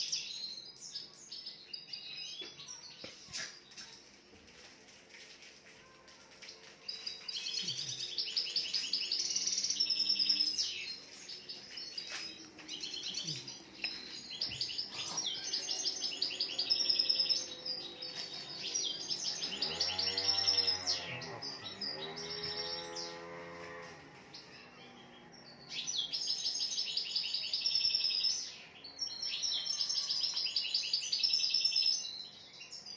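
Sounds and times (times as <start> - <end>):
songbird trilling and chirping: 6.8 - 23.2, 24.4 - 32.9.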